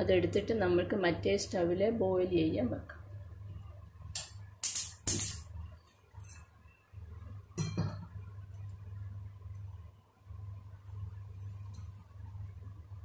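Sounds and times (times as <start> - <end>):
steel pot clinking on stove grate: 7.6 - 8.1.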